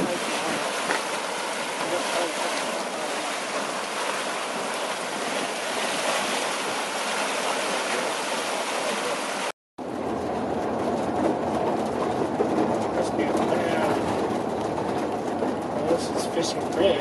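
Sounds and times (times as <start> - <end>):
car driving on highway: 9.8 - 17.0.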